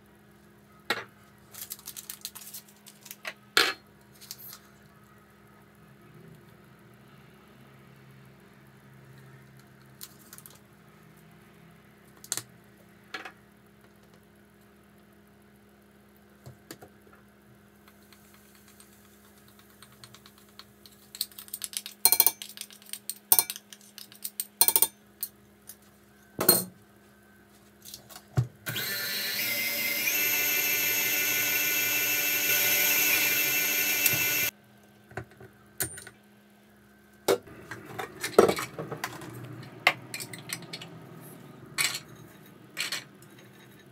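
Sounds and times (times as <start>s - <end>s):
spoon knocking steel bowl: 22.1s - 22.4s, 24.6s - 25.0s
glassware clinking: 22.1s - 22.6s
stand mixer motor whining: 28.7s - 34.5s.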